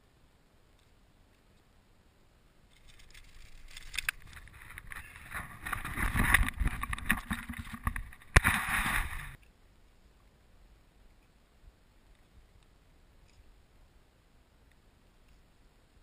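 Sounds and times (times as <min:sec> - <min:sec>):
microphone handling rubbing: 0:03.8 - 0:09.4.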